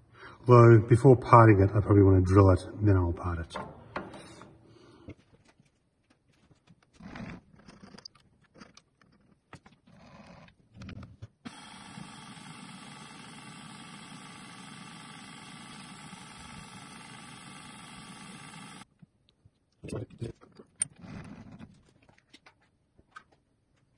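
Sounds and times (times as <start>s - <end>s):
handling clunks and scrapes: 3.5s - 7.0s
drill on metal rod: 11.5s - 18.8s
milling machine spindle motor: 11.5s - 18.8s.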